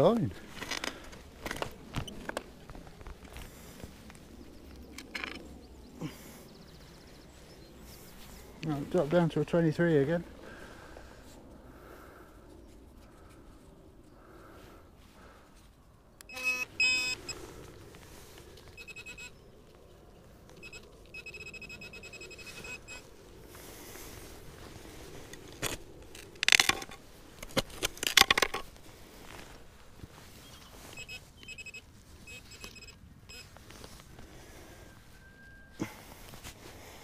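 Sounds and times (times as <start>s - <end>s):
metal detector beeping: 16.2s - 17.4s, 18.7s - 19.4s, 20.6s - 23.1s, 30.4s - 33.7s
loud scraping crunches: 24.9s - 31.0s.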